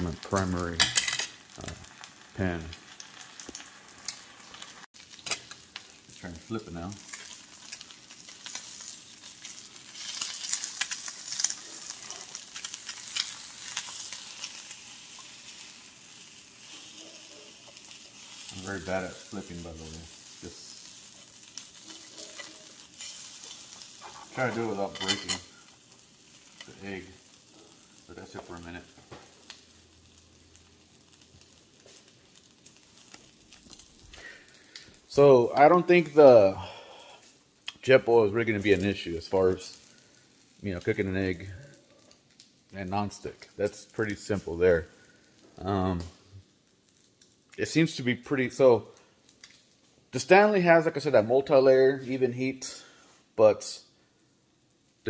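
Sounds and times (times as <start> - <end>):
egg sizzling in oil: 0.0 - 50.3
spatula scraping a pan: 21.5 - 25.6.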